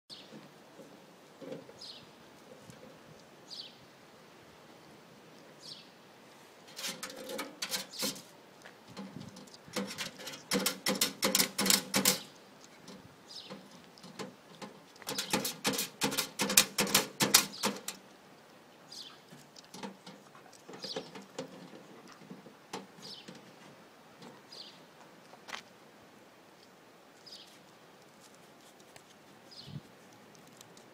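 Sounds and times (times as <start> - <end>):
dog scratching metal post box: 6.7 - 8.3, 9.1 - 12.3, 15.0 - 18.0.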